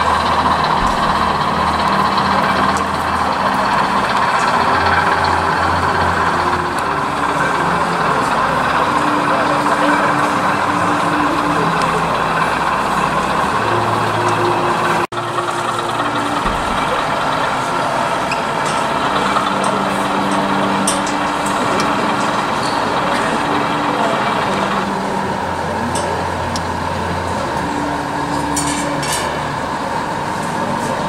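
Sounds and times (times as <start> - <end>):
crowd murmur: 0.0 - 31.0
model locomotive humming: 0.0 - 31.0.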